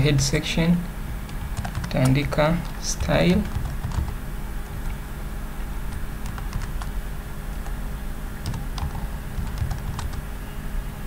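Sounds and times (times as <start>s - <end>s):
steady low hum: 0.0s - 11.0s
computer keyboard keystrokes: 1.3s - 4.2s, 5.9s - 6.9s, 8.4s - 10.2s.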